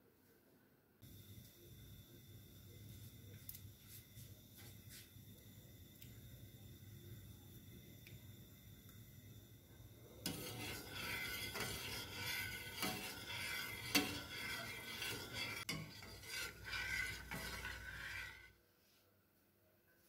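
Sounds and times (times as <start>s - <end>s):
metal spoon stirring in pot: 10.0s - 18.6s.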